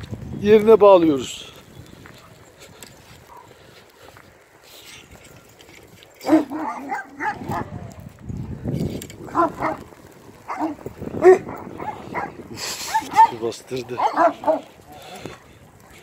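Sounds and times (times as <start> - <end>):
dogs barking: 2.2 - 3.6, 6.2 - 7.8, 9.2 - 16.0.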